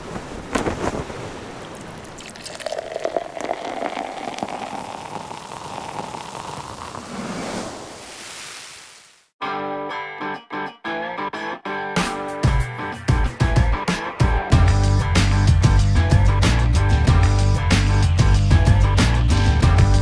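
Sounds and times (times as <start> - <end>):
beer pouring into glass: 1.7 - 7.8.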